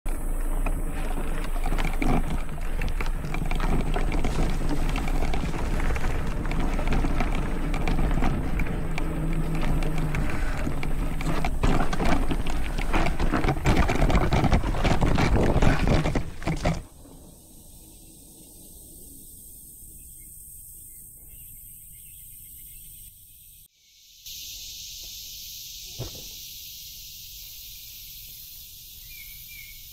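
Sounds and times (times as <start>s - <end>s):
mountain bike rattling over rough ground: 0.1s - 17.4s.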